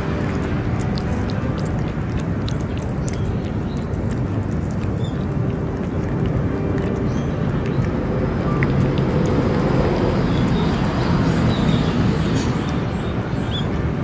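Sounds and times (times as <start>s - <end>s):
cat chewing food: 0.0s - 13.6s
low rumbling noise: 0.0s - 14.0s.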